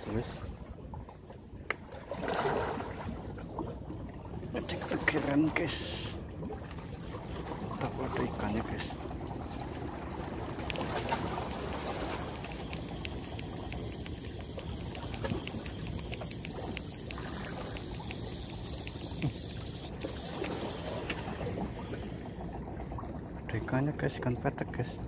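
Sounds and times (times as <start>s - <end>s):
sea water lapping: 0.0s - 25.0s
wind: 0.0s - 25.0s
fishing reel ticking: 11.5s - 22.2s.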